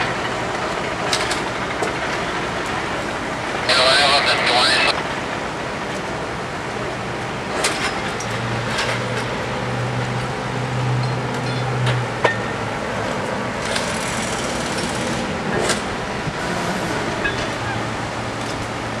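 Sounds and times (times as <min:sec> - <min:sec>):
metal clanks on rails: 0:00.0 - 0:02.9, 0:07.5 - 0:09.4, 0:10.9 - 0:15.9, 0:17.0 - 0:18.8
heavy machinery engine hum: 0:00.0 - 0:19.0.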